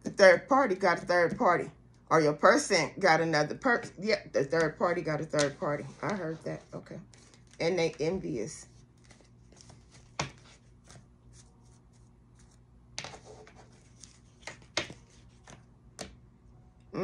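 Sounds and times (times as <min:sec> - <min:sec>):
cards snapping and tapping: 0:14.3 - 0:16.2.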